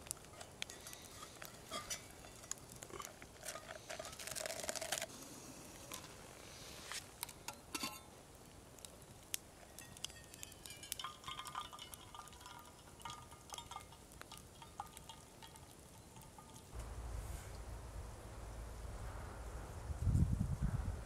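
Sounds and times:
water pouring into metal mug: 0:03.4 - 0:05.1, 0:10.7 - 0:15.6.

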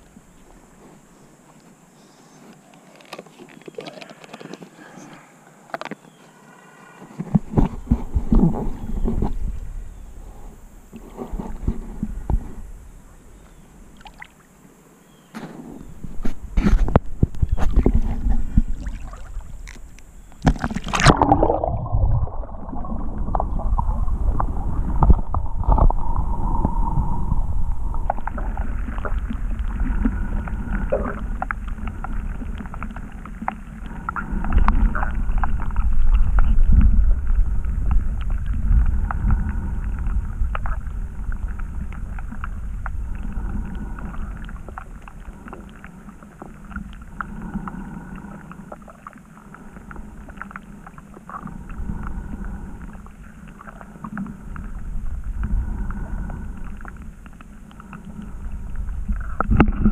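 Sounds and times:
underwater rumble of moving water: 0:00.0 - 0:02.1, 0:07.1 - 0:59.9
small underwater clicks: 0:02.5 - 0:04.8, 0:05.7 - 0:06.2, 0:13.4 - 0:14.6, 0:15.3 - 0:21.6, 0:22.7 - 0:59.9.

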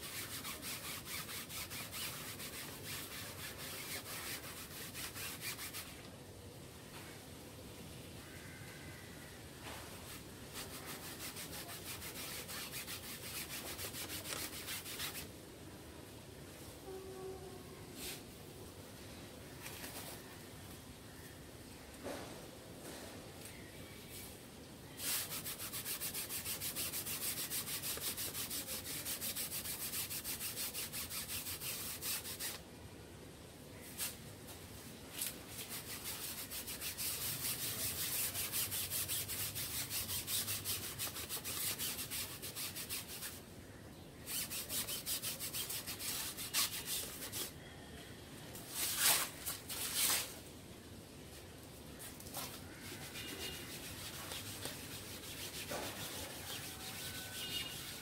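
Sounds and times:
rapid scrubbing strokes: 0:00.0 - 0:06.0, 0:10.0 - 0:15.3, 0:25.0 - 0:32.6, 0:35.2 - 0:43.4, 0:44.3 - 0:47.5, 0:52.5 - 0:58.0
sharp scrapes: 0:00.0 - 0:06.0, 0:09.7 - 0:15.3, 0:24.9 - 0:32.6, 0:35.2 - 0:43.4, 0:44.2 - 0:47.6, 0:48.6 - 0:50.4, 0:52.0 - 0:58.0.

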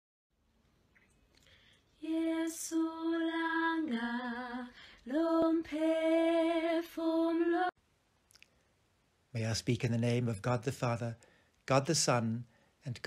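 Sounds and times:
woman singing sustained notes: 0:02.0 - 0:07.8.

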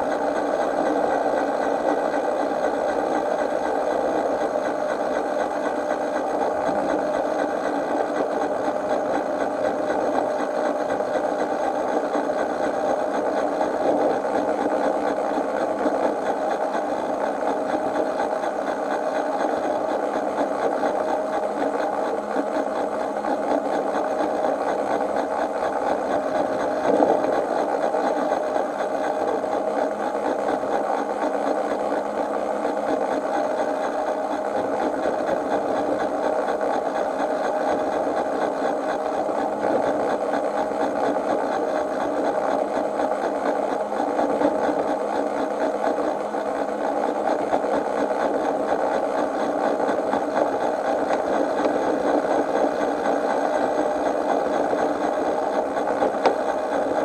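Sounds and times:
miniature train running on track: 0:00.0 - 0:57.0.

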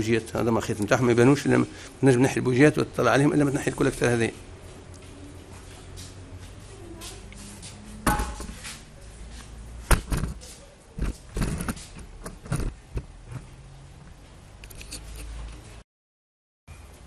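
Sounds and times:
knocks and thumps: 0:09.9 - 0:10.4.

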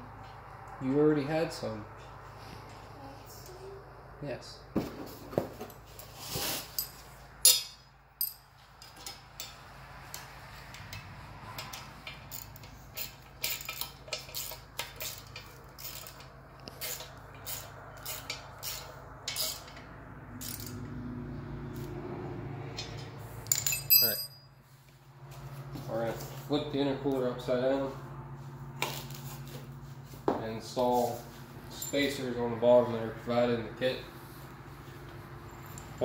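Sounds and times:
light metal clicks and clinks: 0:22.7 - 0:24.5.

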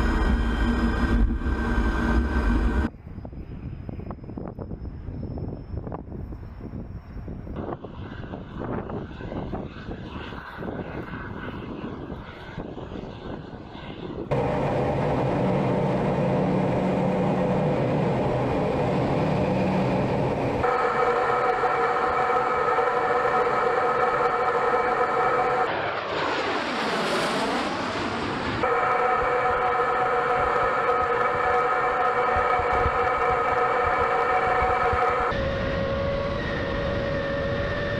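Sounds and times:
cockpit engine drone and whine: 0:00.0 - 0:37.9
jets passing low rushing: 0:07.7 - 0:37.9
sweeping pitch sound: 0:28.6 - 0:37.9.

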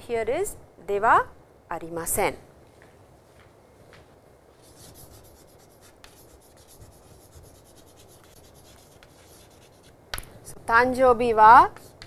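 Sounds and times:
chalk scratching on chalkboard: 0:04.6 - 0:09.9, 0:11.7 - 0:12.0.

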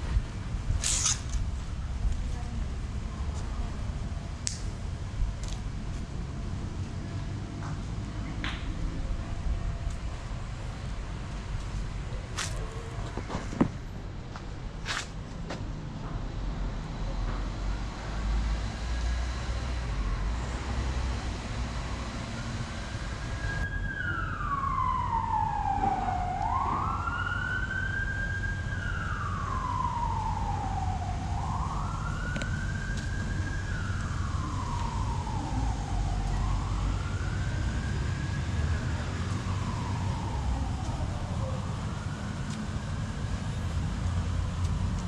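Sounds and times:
emergency vehicle siren wailing: 0:16.8 - 0:45.0.

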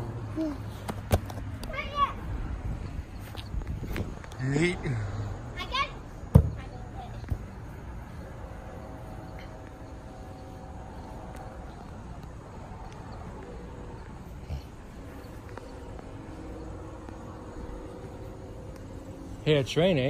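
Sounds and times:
faint hum: 0:06.6 - 0:20.0.

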